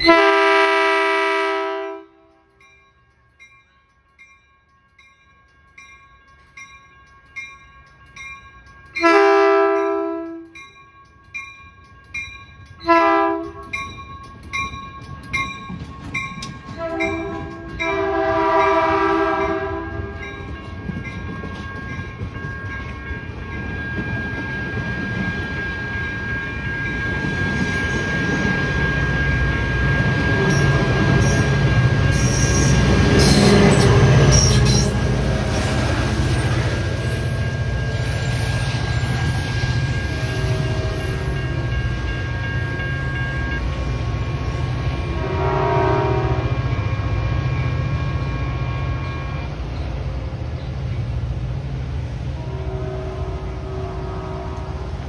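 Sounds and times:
train horn blasts: 0:00.0 - 0:02.5, 0:09.0 - 0:10.6, 0:12.8 - 0:13.8, 0:16.8 - 0:20.3, 0:32.1 - 0:35.3, 0:45.0 - 0:49.5, 0:52.3 - 0:55.0
crossing bell dinging: 0:01.5 - 0:50.1
train wheels rumbling past: 0:06.3 - 0:55.0.

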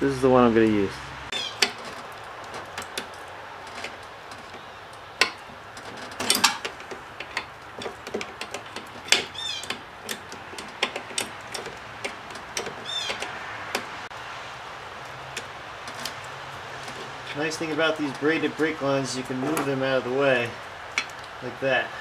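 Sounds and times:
short high squeaks: 0:01.3 - 0:03.0, 0:08.6 - 0:13.5
wrench clinking on metal nut: 0:01.3 - 0:14.0, 0:21.0 - 0:21.2.

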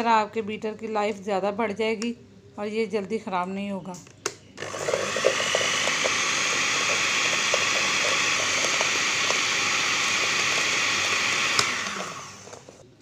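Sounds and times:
electric beater whisking batter: 0:04.6 - 0:12.8.

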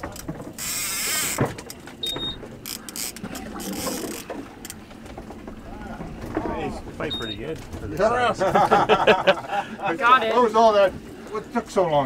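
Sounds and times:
fishing reel clicking and ratcheting: 0:00.6 - 0:01.4, 0:02.6 - 0:04.8.

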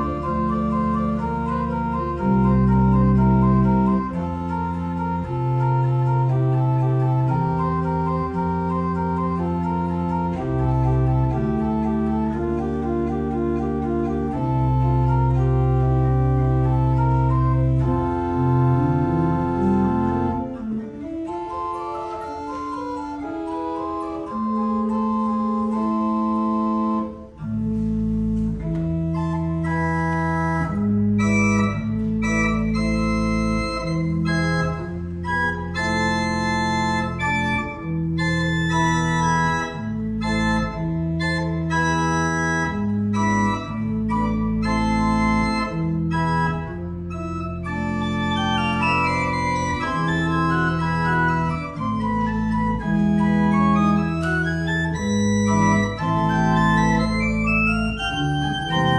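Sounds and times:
pipe organ playing chords: 0:00.0 - 0:58.9.

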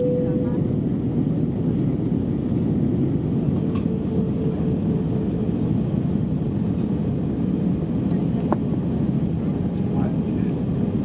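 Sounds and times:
faint steady tone: 0:00.0 - 0:00.6
aircraft engine noise: 0:00.0 - 0:11.0.

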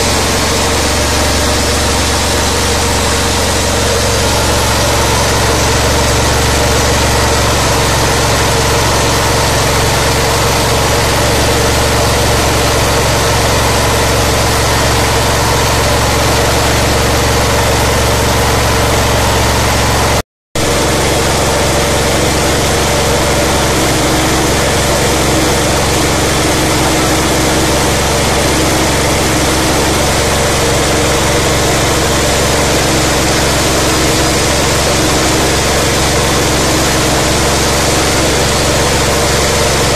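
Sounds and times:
engine droning: 0:00.0 - 0:39.9
rice milling noise: 0:00.0 - 0:39.9.

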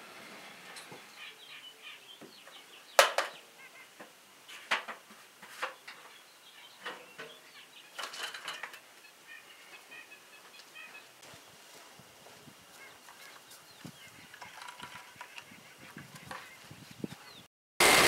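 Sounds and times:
birds chirping faintly: 0:00.7 - 0:17.5.

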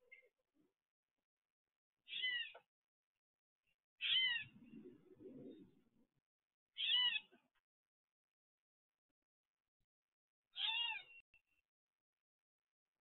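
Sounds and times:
blue jay jeer calls: 0:02.1 - 0:02.5, 0:04.0 - 0:04.5, 0:06.8 - 0:07.3, 0:10.6 - 0:11.1.

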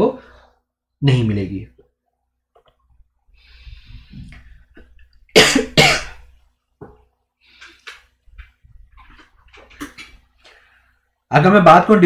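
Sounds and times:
man coughing: 0:05.4 - 0:06.2.

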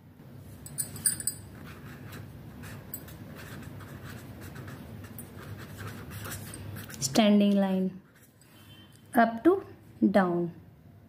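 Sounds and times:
pen scratching on paper: 0:01.6 - 0:07.2.

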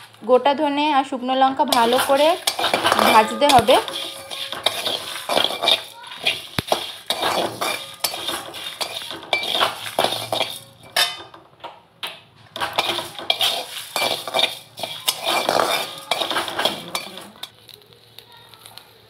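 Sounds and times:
seeds rattling on metal: 0:01.6 - 0:11.4, 0:12.5 - 0:18.9
spatula scraping steel wok: 0:01.6 - 0:11.4, 0:12.4 - 0:17.6.

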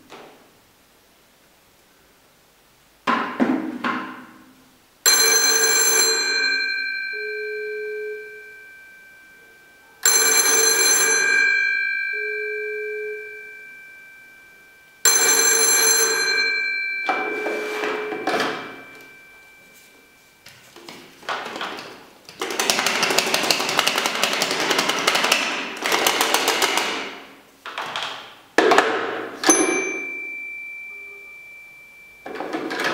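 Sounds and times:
telephone bell ringing: 0:05.1 - 0:20.6, 0:29.4 - 0:32.9.

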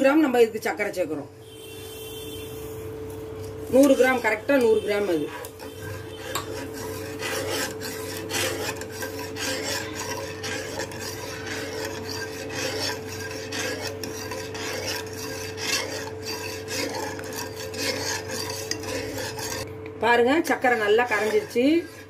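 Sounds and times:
steady hum: 0:00.0 - 0:22.0
ladle scraping metal pot: 0:03.3 - 0:19.7, 0:20.4 - 0:22.0.

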